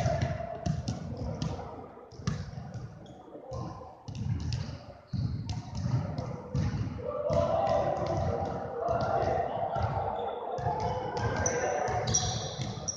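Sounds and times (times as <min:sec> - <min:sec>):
basketball bouncing on wooden floor: 0:03.5 - 0:07.4.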